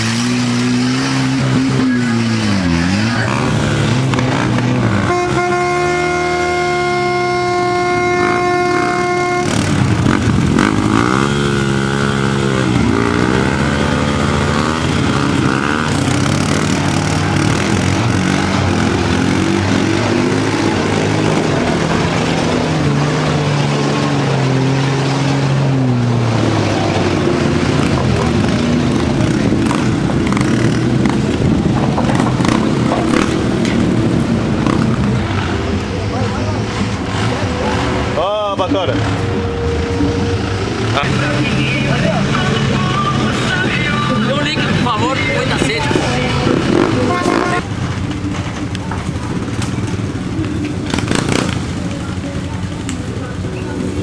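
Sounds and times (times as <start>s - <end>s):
quad bike engines revving: 0.0s - 54.0s
horn note: 4.3s - 14.8s, 46.5s - 47.8s.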